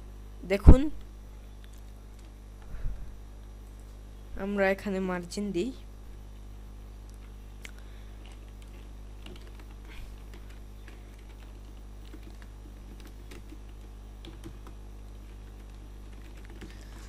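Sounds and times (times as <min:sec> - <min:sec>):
steady low hum: 0:00.0 - 0:17.0
keyboard typing clicks: 0:08.2 - 0:14.8, 0:15.5 - 0:17.0.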